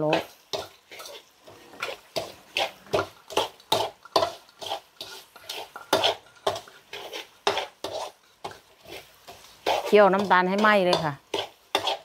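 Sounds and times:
metal ladle scraping a wok: 0.1s - 12.0s.

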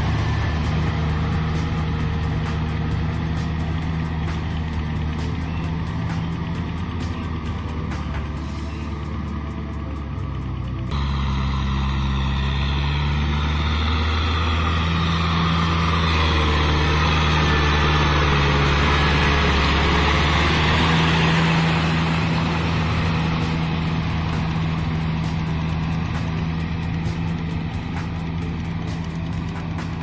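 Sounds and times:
tractor diesel engine running: 0.0s - 30.0s
rotary tiller churning mud: 9.7s - 30.0s.

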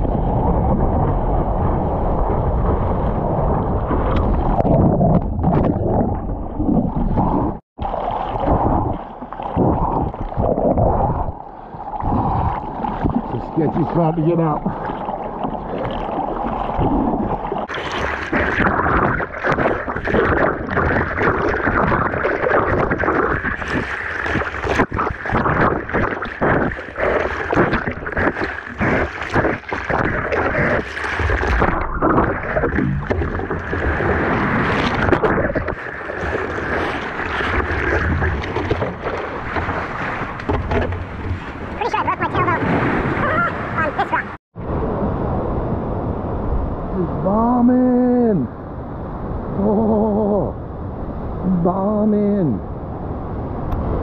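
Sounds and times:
seawater sloshing around surfboard: 1.9s - 44.4s
paddle stroke splashes: 2.6s - 44.4s.

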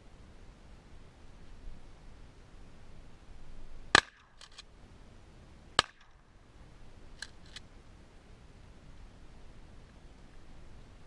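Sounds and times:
shotgun shots: 3.9s - 4.6s, 5.8s - 6.2s.

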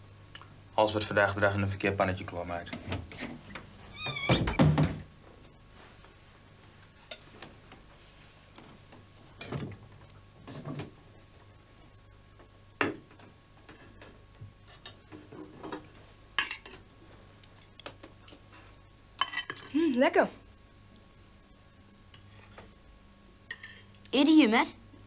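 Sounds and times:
faint low hum: 0.0s - 25.0s.

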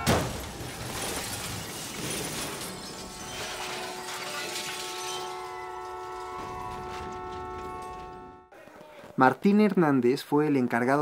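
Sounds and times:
glass and metal debris clattering: 0.0s - 8.2s.

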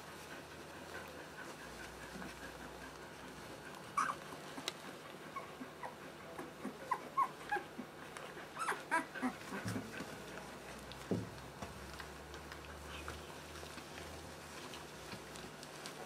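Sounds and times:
puppies squeaking and whimpering: 3.8s - 9.9s.

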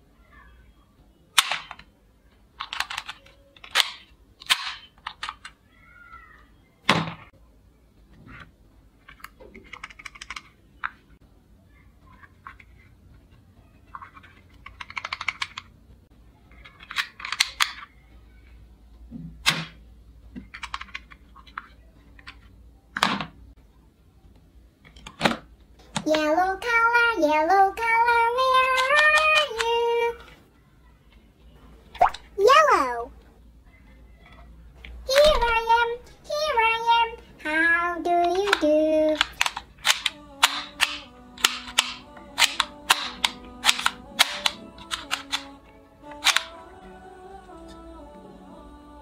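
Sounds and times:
plastic toy guns clattering: 1.4s - 1.9s, 2.6s - 5.5s, 16.6s - 17.9s, 20.5s - 22.4s, 38.2s - 45.5s, 46.2s - 46.5s.

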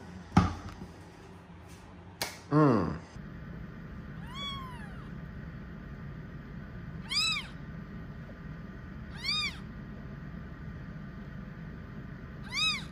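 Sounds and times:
kitten mewing: 4.2s - 5.2s, 7.0s - 7.6s, 9.1s - 9.7s, 12.4s - 12.9s.

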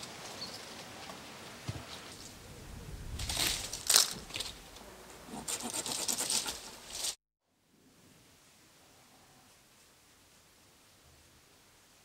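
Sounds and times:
dry twigs rustling and crackling: 1.9s - 4.9s
branch snapping: 3.2s - 4.8s.

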